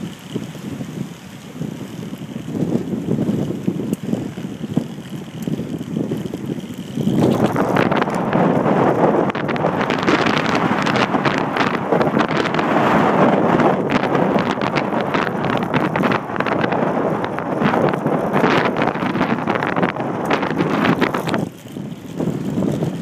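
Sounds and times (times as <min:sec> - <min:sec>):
tyres rumbling on rough path: 0:00.0 - 0:23.0
wind buffeting microphone: 0:00.0 - 0:23.0
rattles and clicks: 0:01.8 - 0:12.4, 0:13.9 - 0:23.0.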